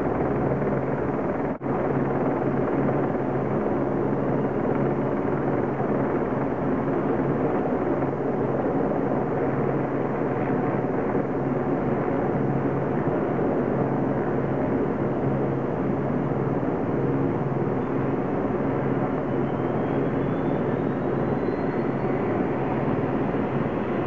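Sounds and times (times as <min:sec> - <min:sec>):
helicopter idling: 0:00.0 - 0:09.9.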